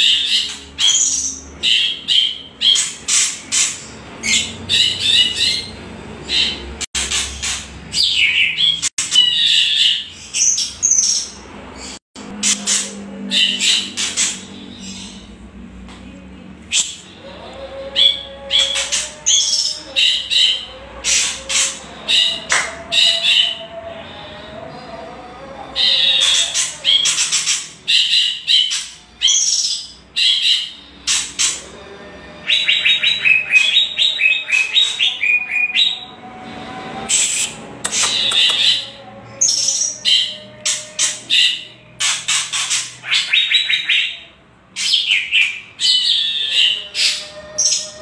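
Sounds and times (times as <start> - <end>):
birds giving rattling chattering calls: 0.0 - 15.4, 25.8 - 31.7, 37.2 - 48.0.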